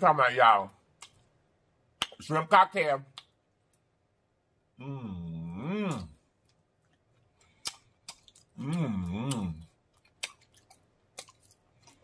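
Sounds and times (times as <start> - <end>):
person humming mmm: 4.8 - 6.2, 8.6 - 9.7
chewing with mouth clicks: 5.9 - 12.0.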